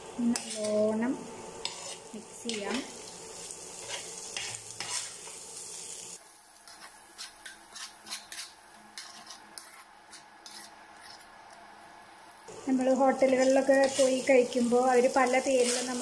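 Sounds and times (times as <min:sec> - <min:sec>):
oil sizzling: 0:00.0 - 0:16.0
spoon scraping rice in pan: 0:00.4 - 0:00.8, 0:01.6 - 0:02.9, 0:03.7 - 0:05.4, 0:06.7 - 0:11.6, 0:13.4 - 0:14.2, 0:15.6 - 0:16.0.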